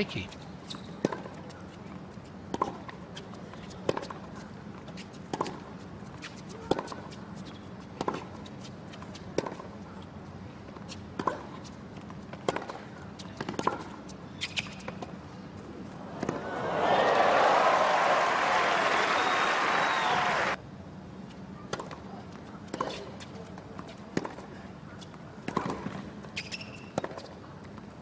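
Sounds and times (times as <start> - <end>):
tennis ball hits: 16.0 - 17.2
crowd applause: 16.1 - 20.6.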